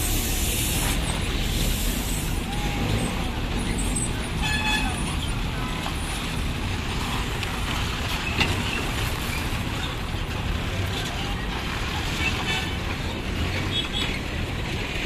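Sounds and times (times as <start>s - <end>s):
traffic noise: 0.0s - 15.0s
truck diesel engine rolling past: 0.0s - 15.0s.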